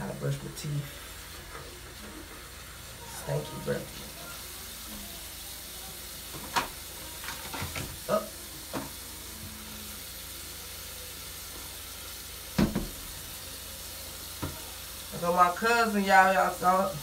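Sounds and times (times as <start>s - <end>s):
toiletries being handled: 6.2s - 9.6s
cabinet door clicks and knocks: 12.6s - 13.0s.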